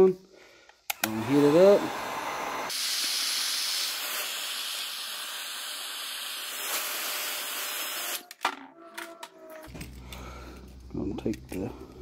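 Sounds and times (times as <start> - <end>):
heat gun hissing: 0.8 - 8.2.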